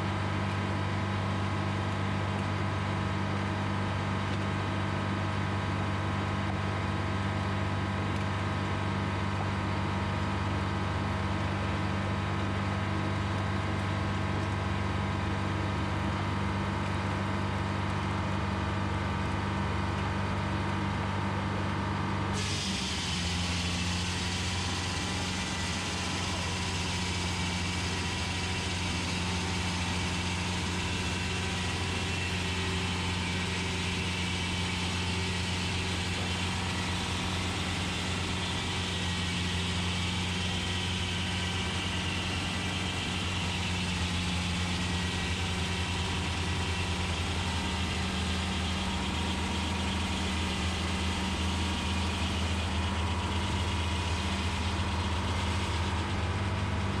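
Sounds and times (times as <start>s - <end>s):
diesel engine droning: 0.0s - 57.0s.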